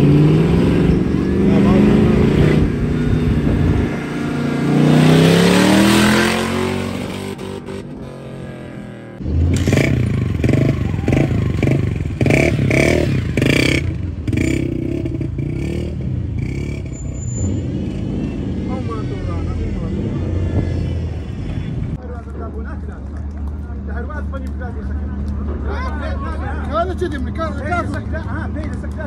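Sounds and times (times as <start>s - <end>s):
engine revving: 0.0s - 21.2s.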